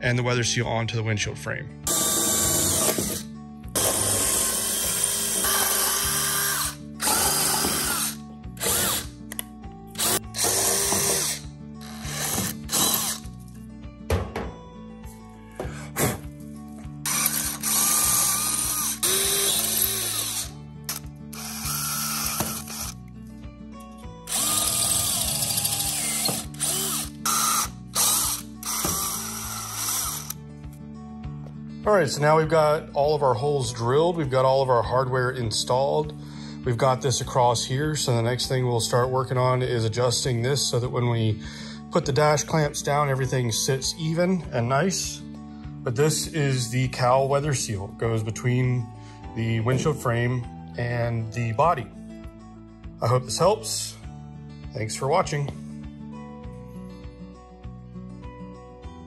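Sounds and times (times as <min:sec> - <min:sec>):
power drill boring through steel: 0:01.9 - 0:09.1, 0:10.0 - 0:13.3, 0:17.1 - 0:23.0, 0:24.3 - 0:30.4.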